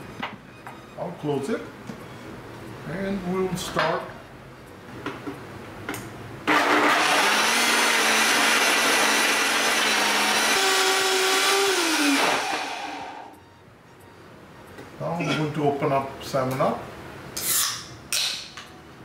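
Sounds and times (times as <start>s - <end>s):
blender crushing ice: 6.5s - 13.3s.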